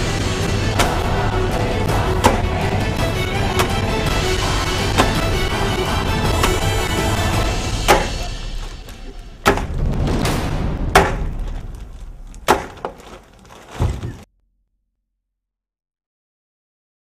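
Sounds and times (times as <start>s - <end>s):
whip smacking raw meat: 2.2s - 2.5s, 4.9s - 5.4s, 7.8s - 9.8s, 11.0s - 11.8s.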